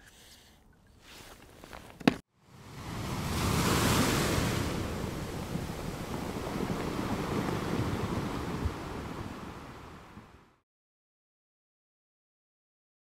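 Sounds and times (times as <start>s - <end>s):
rushing surf-like water: 2.4s - 10.6s.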